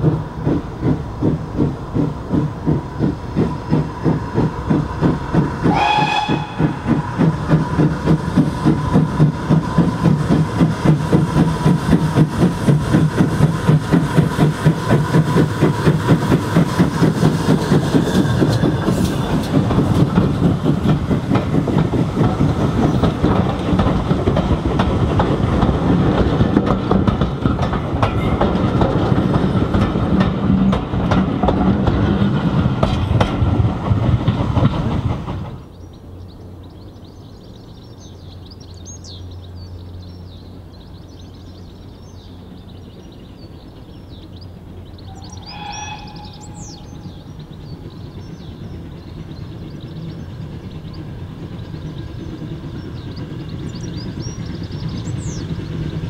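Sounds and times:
steam engine exhaust beating: 0.0s - 37.2s, 38.3s - 56.0s
train wheels clattering on rails: 0.0s - 56.0s
train whistle blast: 5.7s - 6.9s, 45.1s - 47.2s.

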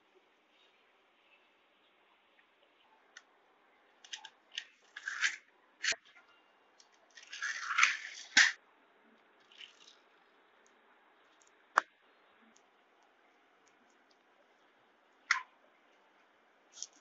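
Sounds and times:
toy car motor clicks: 7.2s - 8.6s
toy car dragged on marble floor: 7.3s - 8.6s
toy car motor whirring: 7.3s - 8.6s.

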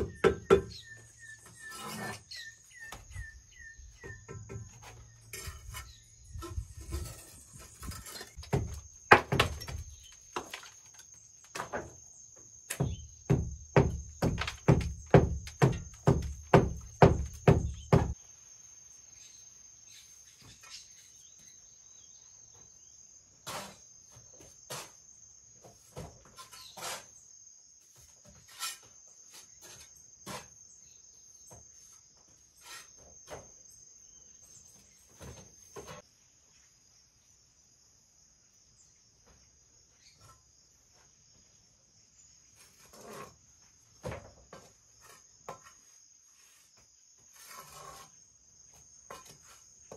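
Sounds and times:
knocks on brick wall: 8.4s - 9.8s, 12.7s - 18.2s.

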